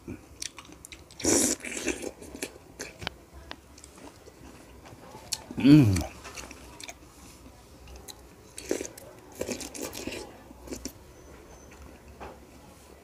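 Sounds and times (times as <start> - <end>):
wet chewing and lip-smacking: 0.4 - 3.1, 7.9 - 11.0.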